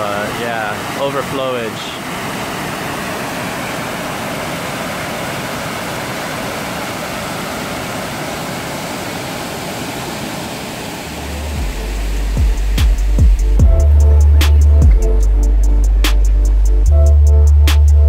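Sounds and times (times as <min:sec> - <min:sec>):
water rushing over weir: 0:00.0 - 0:13.6.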